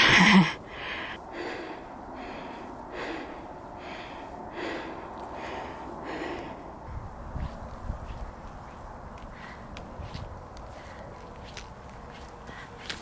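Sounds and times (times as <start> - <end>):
heavy panting breaths: 0.0 - 6.9, 9.2 - 11.3, 12.3 - 13.0.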